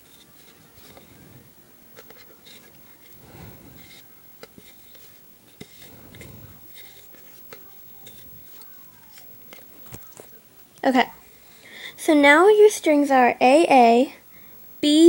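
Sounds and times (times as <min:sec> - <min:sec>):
strings rubbing and rustling: 0:00.0 - 0:10.4.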